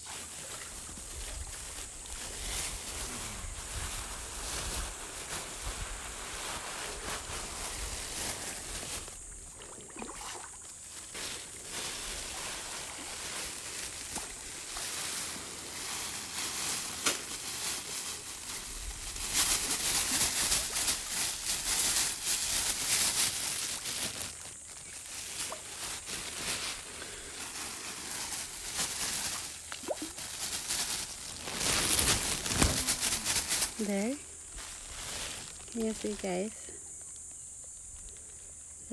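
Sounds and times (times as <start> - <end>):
crackly water noises: 0.0 - 38.9
fish splashing in water: 9.3 - 16.3, 28.2 - 33.6.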